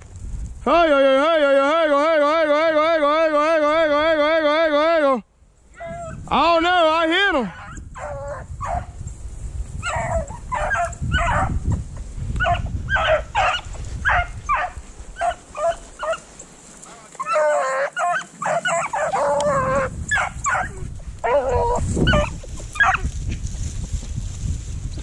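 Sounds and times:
hounds baying: 7.5 - 9.0, 9.8 - 11.6, 12.4 - 23.2.

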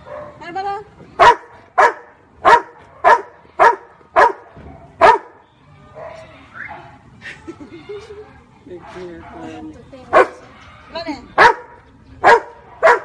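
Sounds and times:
dog barking: 0.0 - 0.4, 1.2 - 5.4, 8.8 - 10.4, 11.4 - 13.0.

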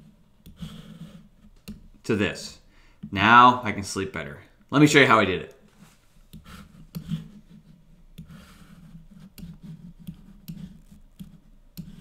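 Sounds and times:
computer mouse and keys clicking: 0.4 - 2.0, 6.3 - 12.0.

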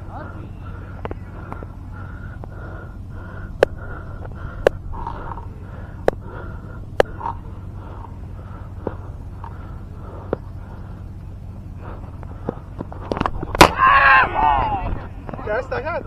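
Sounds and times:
low hum with pulsing tone: 0.0 - 16.0.

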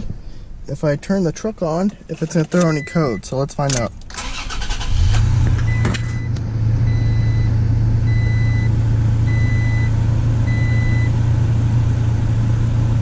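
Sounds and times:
dashboard warning chime beeping: 2.4 - 3.5, 5.6 - 9.9, 10.5 - 11.1
car engine idling: 3.9 - 13.0.

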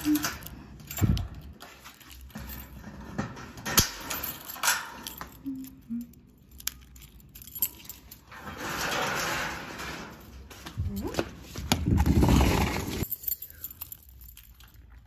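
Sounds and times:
keys jangling: 0.0 - 8.6, 13.0 - 15.0
key in metal door lock: 0.0 - 10.3.

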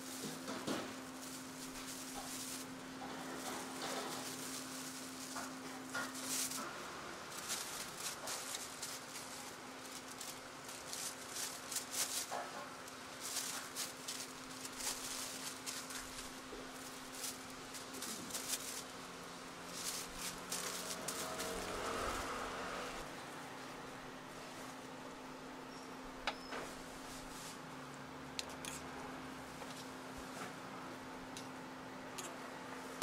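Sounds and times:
plastic gloves and bags crinkling: 0.0 - 25.0
steady low hum: 0.0 - 33.0.

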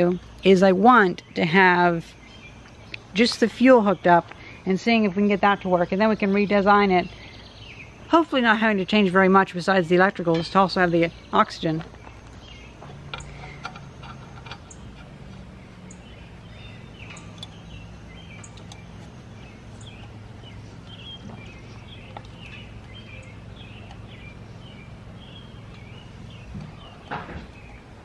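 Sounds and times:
small birds chirping: 0.0 - 28.0
steady low hum: 0.0 - 28.0
metal pipe fittings clicking: 13.1 - 15.4.

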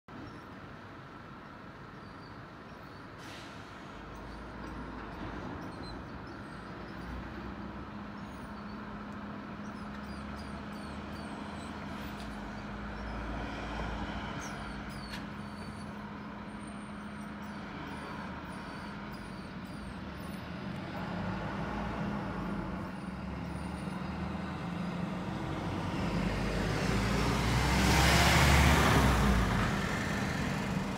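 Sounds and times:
lorry diesel engine running: 28.4 - 30.9.

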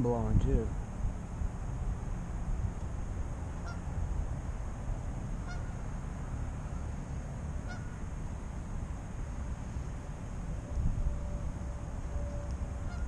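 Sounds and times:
wind buffeting microphone: 0.0 - 13.0
geese honking faintly: 3.5 - 4.0, 5.3 - 8.3, 9.4 - 13.0.

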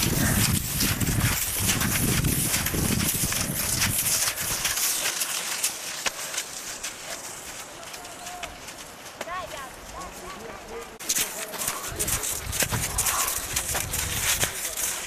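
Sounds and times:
wind on microphone: 0.0 - 5.0, 11.8 - 15.0
skis crunching on snow: 0.0 - 15.0.

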